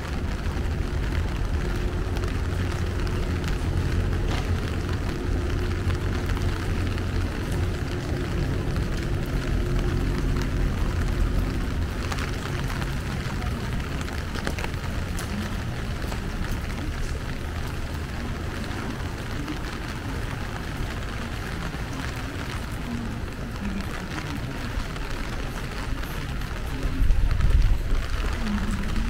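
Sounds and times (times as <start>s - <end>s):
steady rain falling: 0.0s - 29.0s
street traffic rumble: 0.0s - 29.0s.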